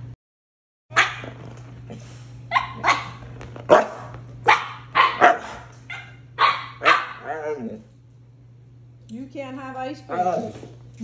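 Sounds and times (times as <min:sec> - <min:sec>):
dog barking: 0:00.9 - 0:01.3, 0:02.5 - 0:07.6.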